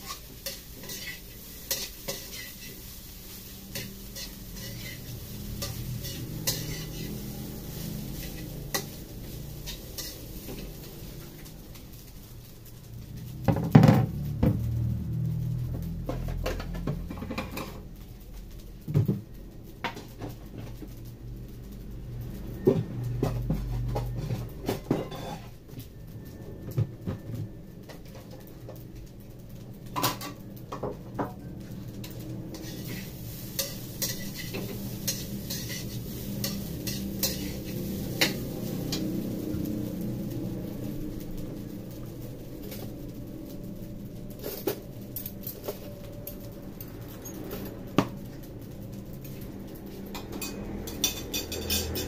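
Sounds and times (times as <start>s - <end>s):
metal spatula scraping in wok: 0.0s - 12.8s, 23.2s - 25.6s, 31.8s - 41.4s, 50.1s - 52.0s
metal kitchenware clanking: 3.6s - 11.0s, 23.3s - 25.6s, 32.0s - 39.2s, 50.1s - 52.0s.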